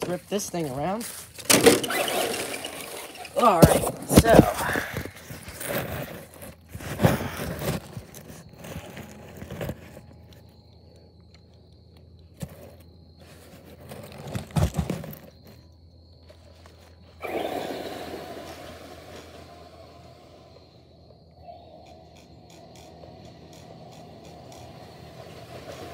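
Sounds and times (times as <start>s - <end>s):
tyres scrabbling over turf: 0.0s - 10.0s, 12.4s - 15.6s
rc car driving on grass: 0.0s - 10.4s, 16.2s - 20.9s, 21.6s - 25.9s
wheelspin throwing up dirt: 1.1s - 10.0s, 12.4s - 15.6s, 17.1s - 20.6s, 21.9s - 25.9s.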